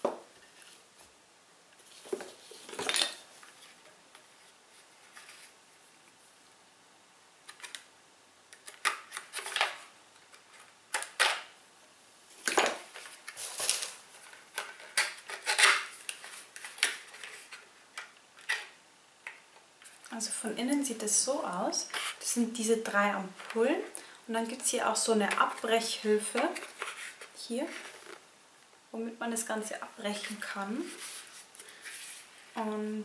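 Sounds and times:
packaging rustling: 12.4 - 17.7
packaging scraping: 12.9 - 17.6.

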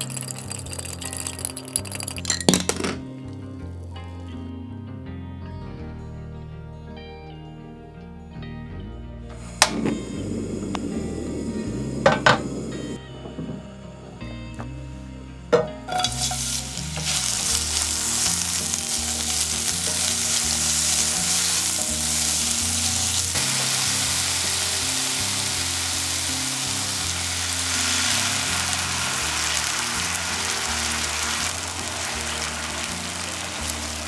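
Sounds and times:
onion sizzling in hot oil: 0.0 - 2.2, 15.9 - 34.0.

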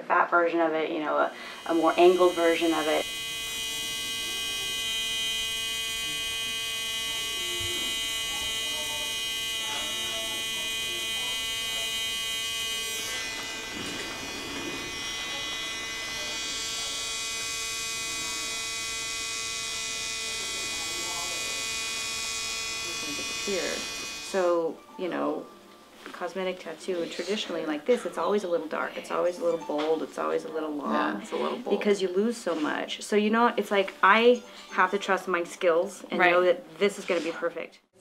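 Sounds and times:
tattoo machine buzzing: 1.5 - 24.7.

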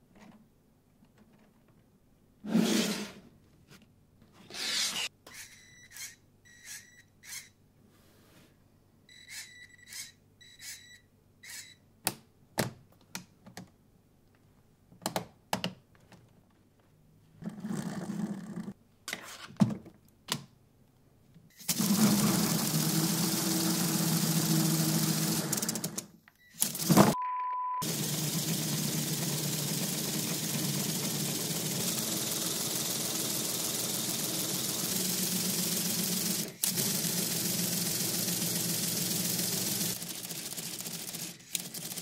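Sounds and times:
small servo motor whirring: 4.5 - 7.6, 9.3 - 10.8
compressed-air engine running: 21.6 - 26.0, 27.8 - 42.0.

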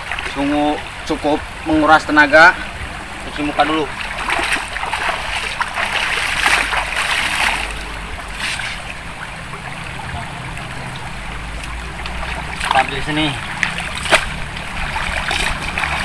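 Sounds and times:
shallow river rushing: 0.0 - 16.0
water splashing by hand: 3.3 - 16.0.

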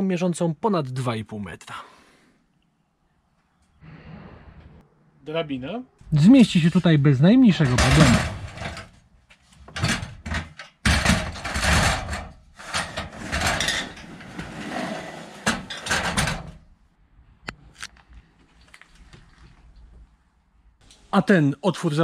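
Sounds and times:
ladder scraping and knocking: 7.5 - 16.6.

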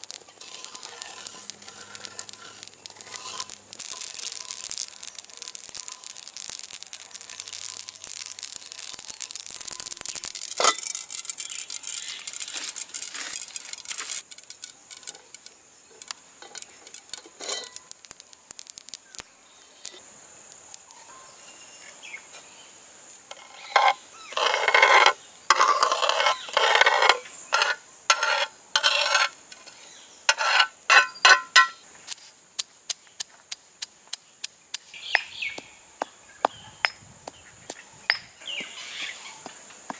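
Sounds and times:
seeds swishing in metal pan: 0.0 - 19.2
metal spoon stirring dry seeds: 0.0 - 20.0, 23.3 - 34.9.

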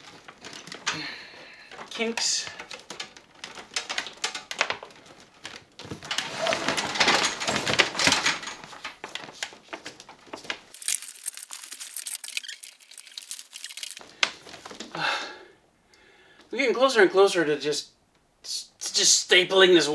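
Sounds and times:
cables rustling and scraping: 0.0 - 14.9.

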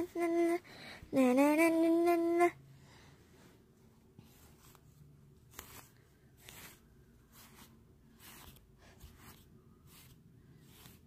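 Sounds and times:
rustling of toys and cloth: 2.3 - 11.0.

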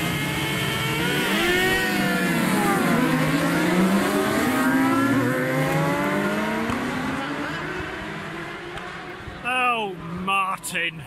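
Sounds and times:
racing motorcycles revving: 0.0 - 10.7.

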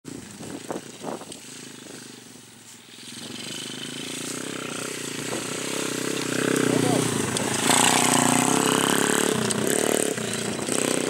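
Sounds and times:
dirt bike engine buzzing: 0.1 - 11.0.

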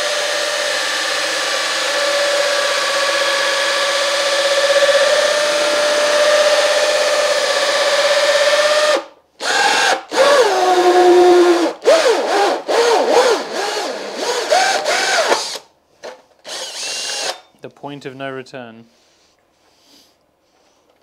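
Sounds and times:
drill motor whining: 0.0 - 15.6, 16.4 - 17.5.

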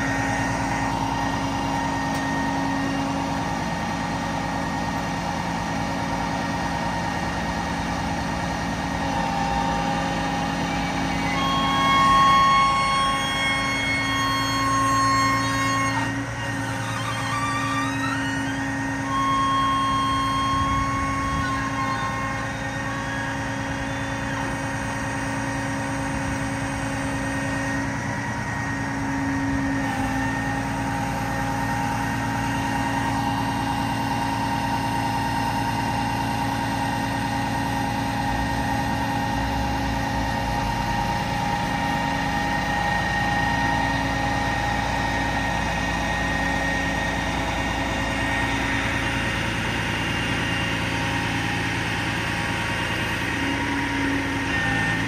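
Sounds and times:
diesel engine running: 0.0 - 55.0
hydraulic whine: 0.0 - 55.0.

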